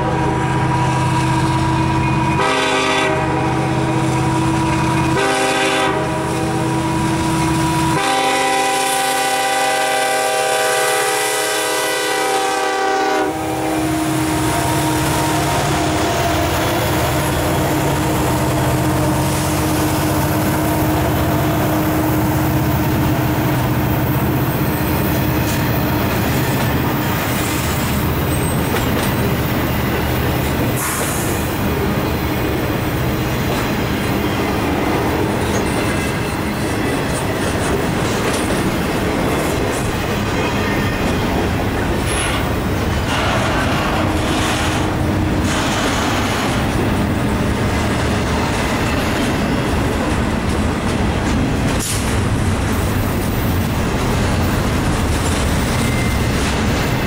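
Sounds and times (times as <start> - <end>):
locomotive horn: 0.0 - 24.4
train wheels rumbling on rails: 0.0 - 57.0.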